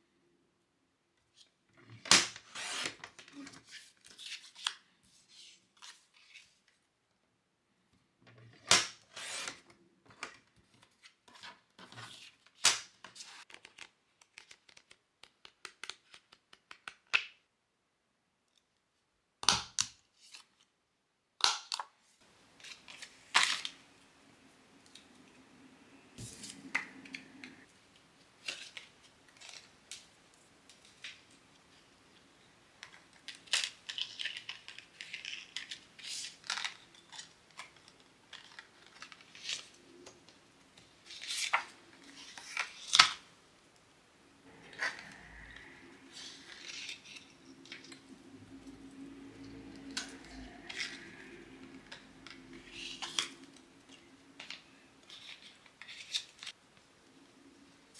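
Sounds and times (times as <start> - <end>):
paper trimmer blade slicing: 2.5 - 3.0
faint hum: 23.7 - 28.4, 43.3 - 55.0.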